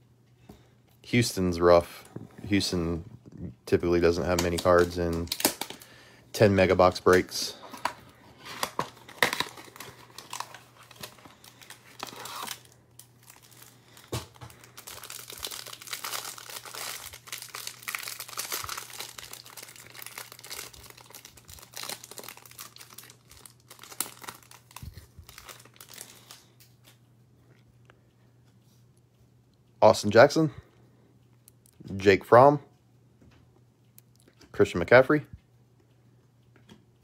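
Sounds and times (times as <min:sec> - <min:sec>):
plastic wrapper crinkling: 0:04.1 - 0:06.0, 0:06.6 - 0:27.0.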